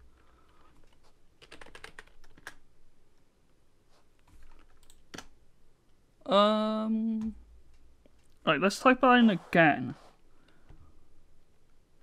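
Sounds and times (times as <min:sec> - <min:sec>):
typing on computer keyboard: 0:00.5 - 0:02.6, 0:04.4 - 0:05.3.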